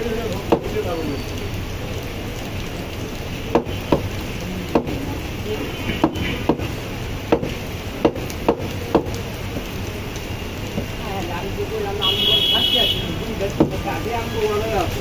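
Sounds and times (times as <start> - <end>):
cleaver chopping meat on wood: 4.7 - 5.0, 7.3 - 9.1.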